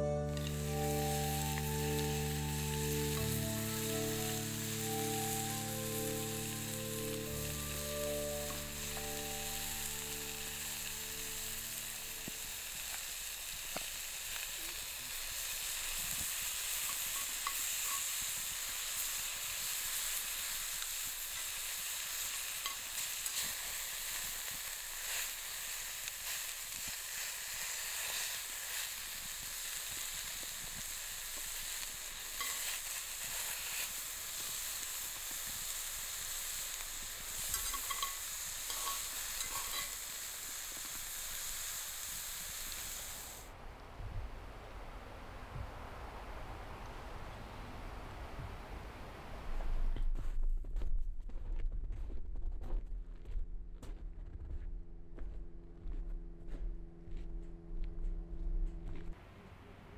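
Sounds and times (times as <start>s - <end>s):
bacon sizzling in a skillet: 0.3s - 43.5s
tongs clicking in a pan: 16.8s - 18.2s, 22.6s - 23.5s, 32.4s - 32.8s, 37.4s - 40.1s.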